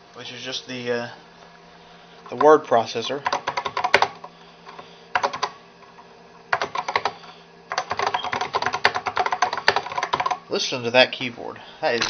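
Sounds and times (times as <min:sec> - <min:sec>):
keyboard keys clacking: 0:03.3 - 0:04.1, 0:06.6 - 0:10.4.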